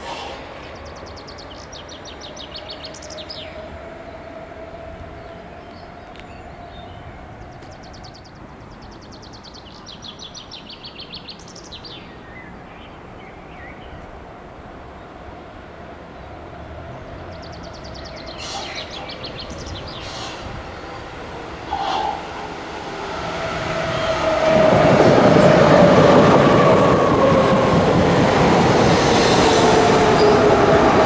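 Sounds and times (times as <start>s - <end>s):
train running with steady hum: 0.0s - 9.9s, 10.5s - 31.0s
songbird trilling: 17.4s - 20.5s.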